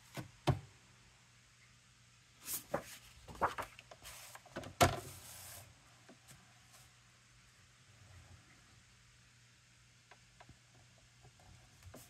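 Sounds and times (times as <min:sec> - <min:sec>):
cardstock rustling: 0:02.4 - 0:04.4.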